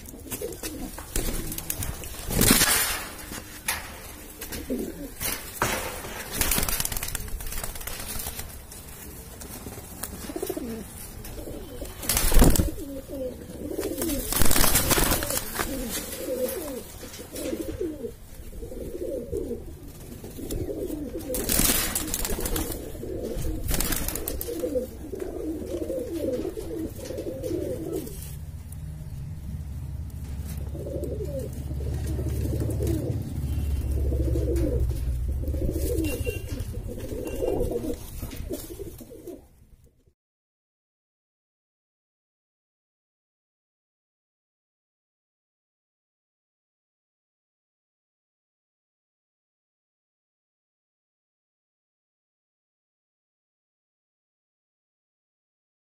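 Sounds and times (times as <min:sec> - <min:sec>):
pigeons cooing: 0:00.0 - 0:39.6
low rumble: 0:28.1 - 0:35.9.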